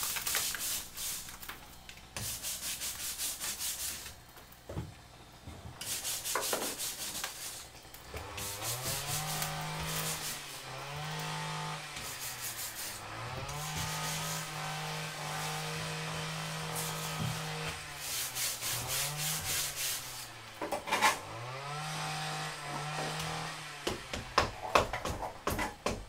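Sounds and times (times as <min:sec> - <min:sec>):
metal scraper rasping on wall: 0:05.8 - 0:26.0.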